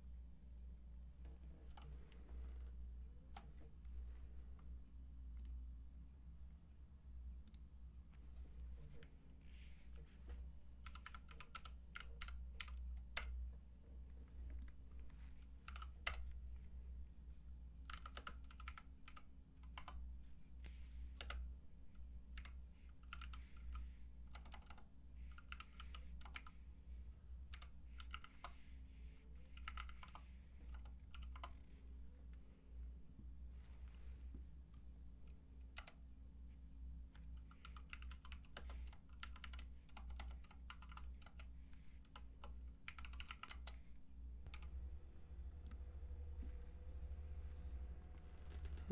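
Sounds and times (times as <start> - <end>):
low steady hum: 0.0 - 48.9
keyboard typing: 1.4 - 3.7, 10.8 - 13.4, 14.3 - 16.4, 17.8 - 20.0, 21.1 - 21.5, 22.4 - 26.6, 27.5 - 28.6, 29.4 - 31.7, 35.3 - 36.0, 37.1 - 44.9, 45.6 - 48.9.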